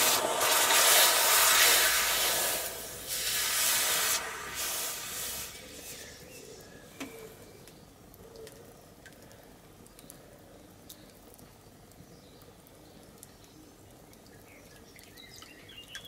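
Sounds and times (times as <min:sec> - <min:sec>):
hot steel hissing in water: 0:00.0 - 0:06.8
sizzling and bubbling: 0:00.0 - 0:16.0.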